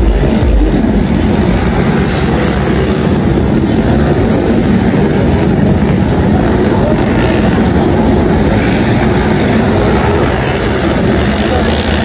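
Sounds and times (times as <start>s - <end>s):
motorcycle engines racing: 0.0s - 12.0s.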